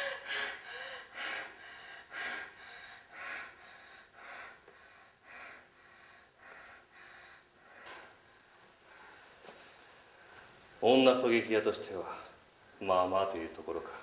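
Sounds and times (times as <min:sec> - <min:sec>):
woman panting heavily: 0:00.0 - 0:09.4.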